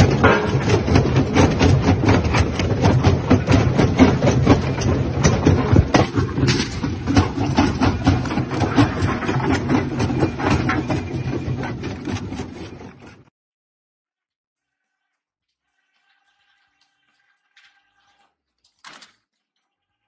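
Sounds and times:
machinery low rumble: 0.0s - 13.0s.

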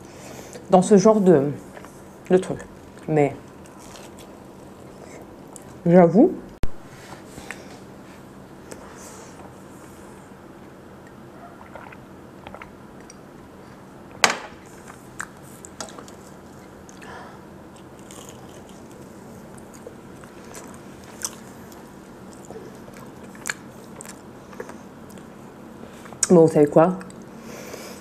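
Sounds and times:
biting and chewing food: 2.7s - 5.8s, 14.8s - 25.4s.

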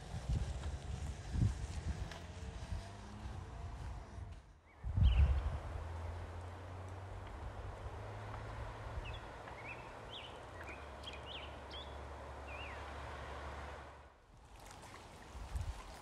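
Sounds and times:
bird chirping: 9.0s - 12.8s.

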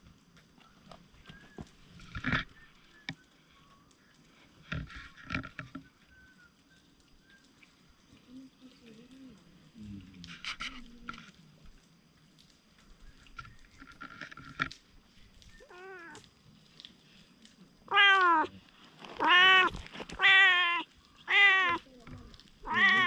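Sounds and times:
cat meowing: 15.6s - 16.2s, 17.9s - 18.5s, 19.2s - 23.0s.

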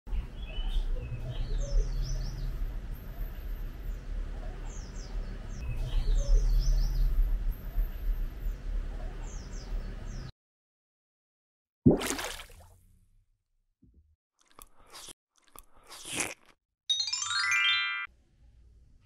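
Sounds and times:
small birds chirping: 0.1s - 10.3s.

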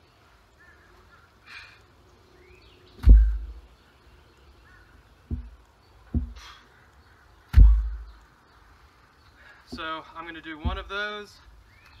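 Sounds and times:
birds calling faintly: 0.0s - 12.0s
heavy thump: 3.0s - 3.6s, 5.3s - 6.4s, 7.5s - 8.2s, 10.6s - 11.0s.

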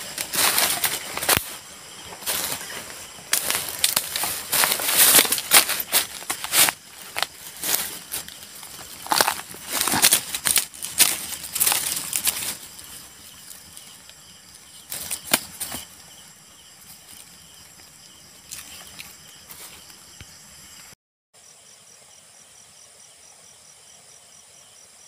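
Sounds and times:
dry leaves crackling and rustling: 0.0s - 19.9s.

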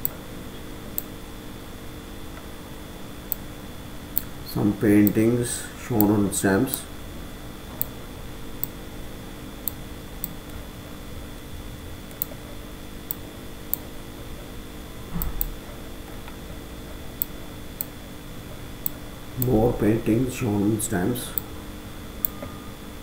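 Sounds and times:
steady electrical hum: 0.0s - 23.0s
computer mouse clicking: 12.1s - 12.4s.

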